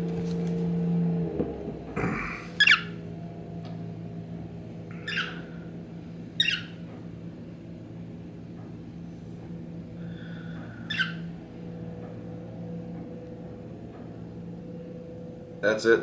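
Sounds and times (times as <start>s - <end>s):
steady low hum: 0.0s - 16.0s
cockatiel chirps: 2.6s - 2.9s, 5.0s - 5.4s, 6.4s - 6.8s, 10.9s - 11.2s.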